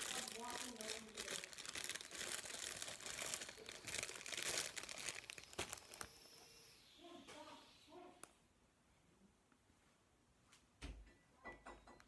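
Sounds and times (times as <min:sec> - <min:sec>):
packaging crinkling: 0:00.0 - 0:06.5.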